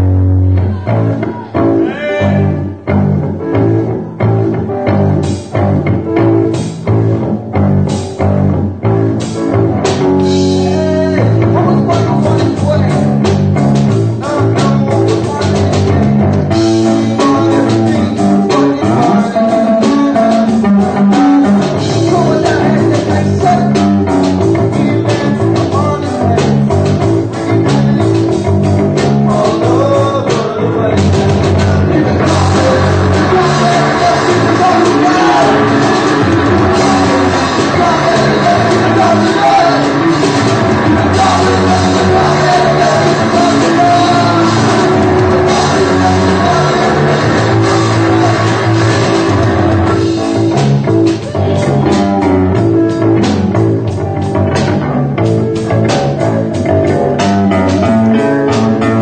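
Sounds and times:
drum kit: 0:00.0 - 0:59.0
electric guitars: 0:00.0 - 0:59.0
person singing: 0:00.4 - 0:02.8, 0:10.3 - 0:28.4, 0:29.0 - 0:53.6.

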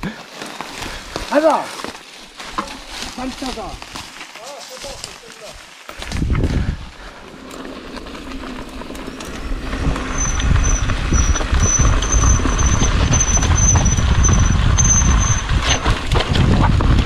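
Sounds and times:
bike tyre rumble: 0:00.0 - 0:17.0
wind on microphone: 0:06.0 - 0:07.1, 0:09.4 - 0:17.0
high brake squeal: 0:10.1 - 0:15.5.

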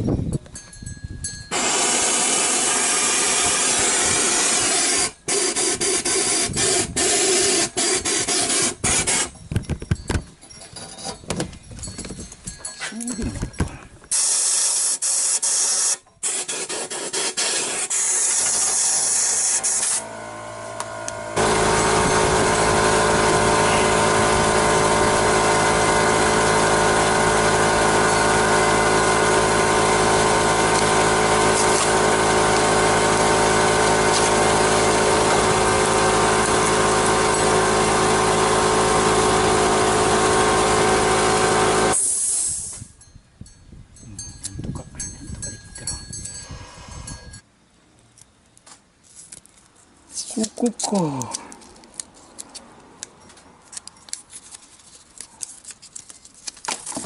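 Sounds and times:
hissing noise bursts: 0:14.1 - 0:20.0
steady machine hum: 0:19.0 - 0:42.0.

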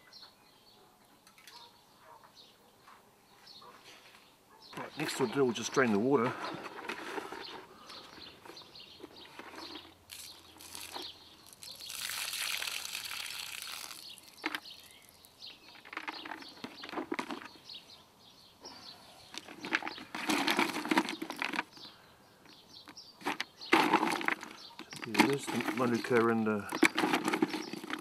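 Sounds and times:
wet wood chips rustling: 0:09.5 - 0:16.3
water pouring from a bucket: 0:10.1 - 0:15.1.

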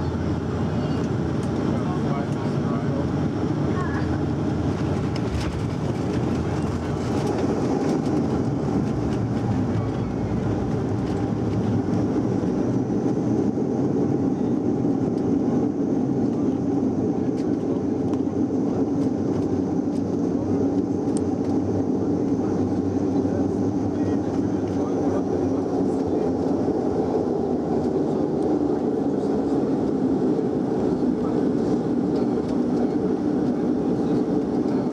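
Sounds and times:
turboprop engines rumbling: 0:00.0 - 0:34.9
wheels rolling on runway: 0:04.7 - 0:12.4.

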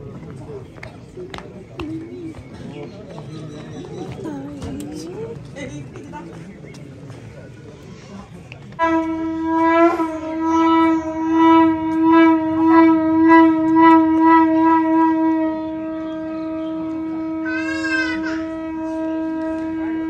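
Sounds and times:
long horn-like note: 0:08.8 - 0:20.0.

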